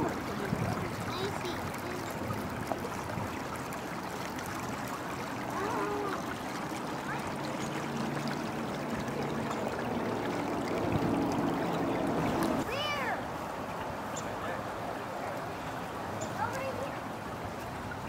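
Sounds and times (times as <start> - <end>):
water running through stone channel: 0.0 - 18.0.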